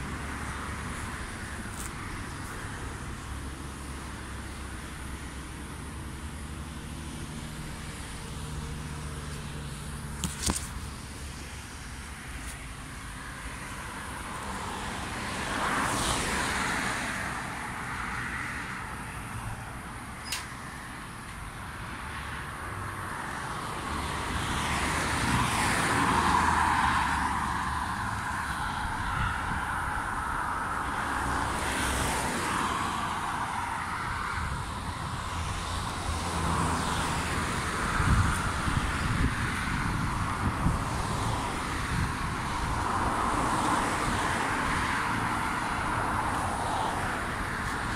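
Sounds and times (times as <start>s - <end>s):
vehicle passing by: 23.6s - 47.9s.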